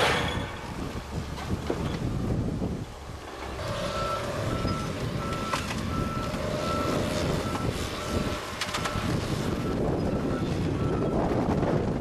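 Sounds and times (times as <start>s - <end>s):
diesel engine rumble: 0.0s - 12.0s
backup alarm beeping: 3.8s - 11.2s.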